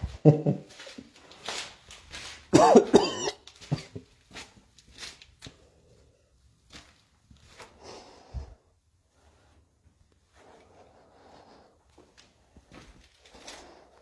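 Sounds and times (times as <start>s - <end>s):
person coughing harshly: 2.5s - 4.0s
faint clicks and rustles: 9.4s - 14.0s.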